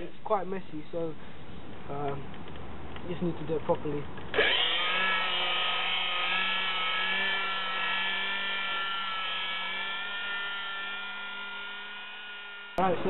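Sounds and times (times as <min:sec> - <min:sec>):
orbital buffer motor whine: 0:04.3 - 0:13.0.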